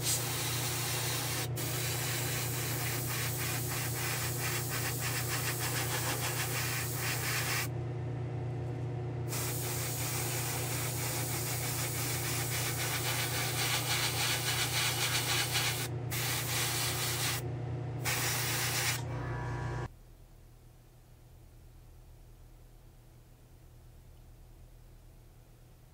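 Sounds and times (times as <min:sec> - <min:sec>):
airbrush spraying hiss: 0:00.0 - 0:07.7, 0:09.3 - 0:17.4, 0:18.0 - 0:19.0
low hum: 0:15.9 - 0:25.9.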